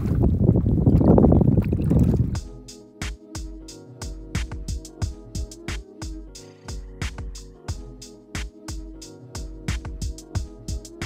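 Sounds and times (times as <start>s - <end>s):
electronic music with drum beat: 2.4s - 11.0s.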